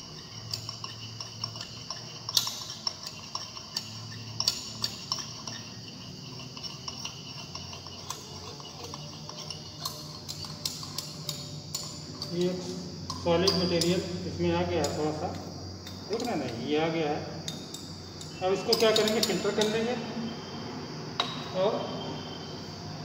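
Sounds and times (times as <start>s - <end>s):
glass rod clinking on beaker: 0.0s - 16.7s, 17.4s - 20.4s, 21.2s - 22.4s
faint glassy ring: 17.4s - 23.0s.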